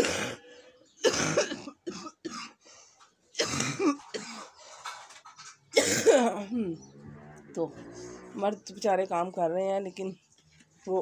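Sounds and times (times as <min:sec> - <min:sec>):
woman coughing: 0:00.0 - 0:00.4, 0:01.0 - 0:02.6, 0:03.4 - 0:04.5, 0:05.8 - 0:06.5.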